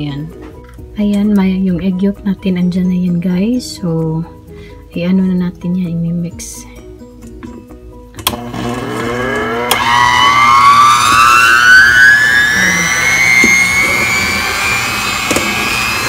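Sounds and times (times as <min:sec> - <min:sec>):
mixer click: 0:08.2 - 0:10.2, 0:13.3 - 0:16.0
electric hand mixer whine: 0:08.2 - 0:16.0.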